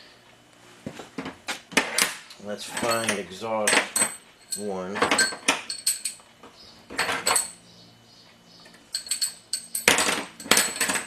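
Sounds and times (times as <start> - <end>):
metal engine valves clinking: 2.8 - 6.2, 8.6 - 11.0.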